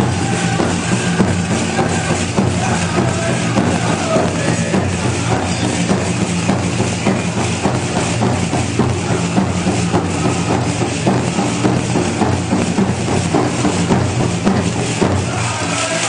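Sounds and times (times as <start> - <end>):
group singing: 0.0 - 8.1, 8.7 - 16.0
big drum beating: 0.0 - 16.0.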